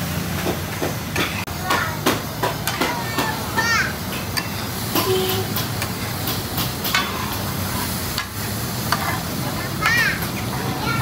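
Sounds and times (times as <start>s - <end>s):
liver sizzling in oil: 2.2s - 11.0s
metal spatula scraping pan: 8.9s - 9.6s.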